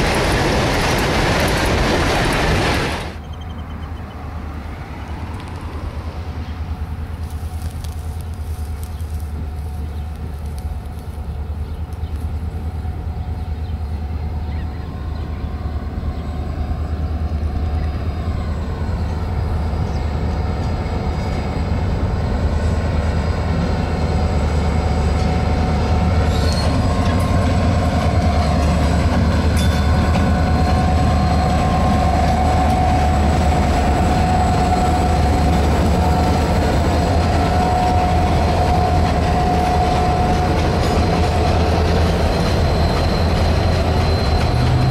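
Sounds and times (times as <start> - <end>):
locomotive engine rumble: 0.0 - 44.9
train wheel squeal: 2.5 - 4.2, 13.0 - 44.9.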